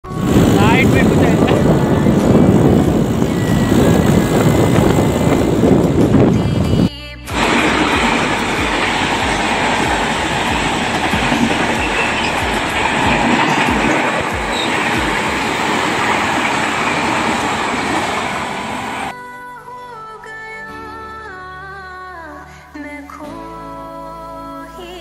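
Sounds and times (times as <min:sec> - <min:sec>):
train rushing rumble: 0:00.0 - 0:19.1
wheels clattering over rail joints: 0:00.1 - 0:06.3, 0:07.3 - 0:19.1.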